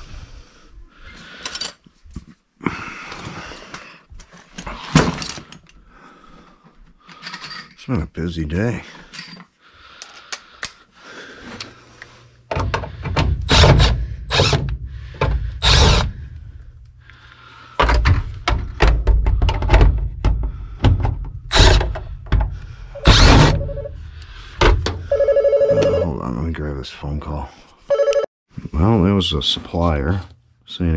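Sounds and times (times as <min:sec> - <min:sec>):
impact driver running: 0:13.5 - 0:14.7, 0:15.6 - 0:16.1, 0:21.5 - 0:21.8, 0:23.0 - 0:23.6.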